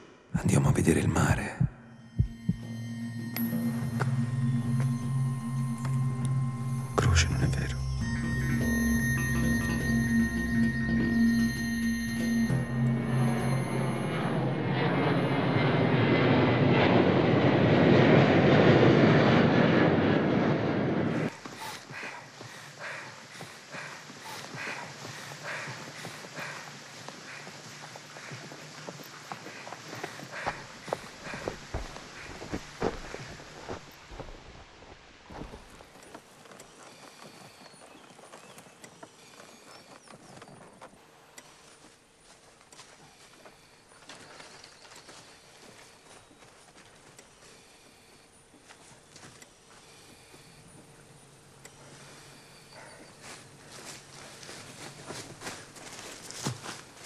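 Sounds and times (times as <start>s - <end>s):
jet airliner roar overhead: 2.0s - 33.3s.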